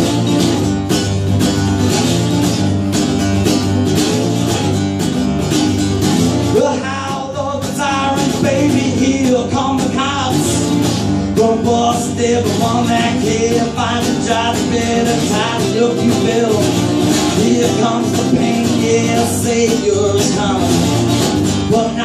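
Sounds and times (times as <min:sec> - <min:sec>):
acoustic guitar strumming: 0:00.0 - 0:22.0
man singing: 0:06.5 - 0:22.0.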